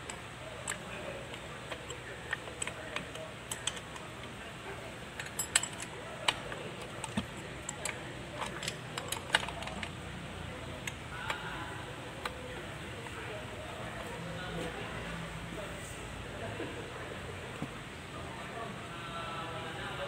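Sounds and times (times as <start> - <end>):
metal gears clicking and clinking: 0.0 - 4.4, 5.1 - 10.0.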